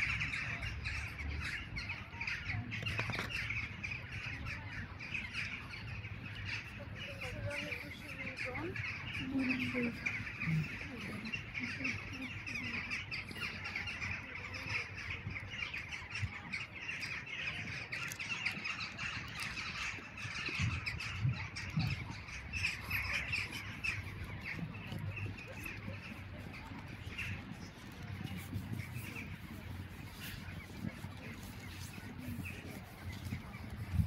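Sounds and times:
flock of birds chattering: 0.0 - 34.0
footsteps crunching in snow: 15.7 - 34.0.

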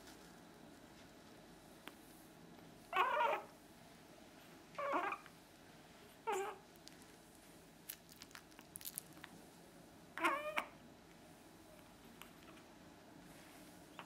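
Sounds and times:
puppy whining: 2.9 - 3.6, 4.8 - 5.3, 6.2 - 6.6, 10.2 - 10.8.

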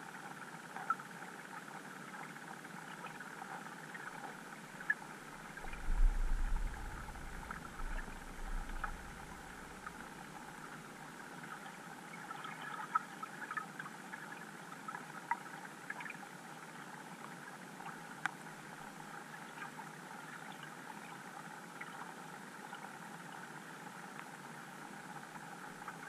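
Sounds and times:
muffled underwater hiss: 0.8 - 13.4
faint clicks and crackles: 2.1 - 10.7.

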